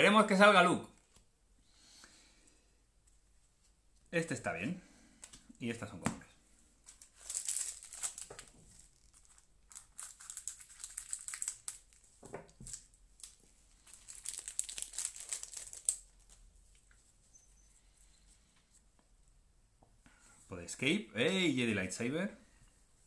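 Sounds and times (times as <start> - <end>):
foil wrapper crinkling and tearing: 6.9 - 16.4.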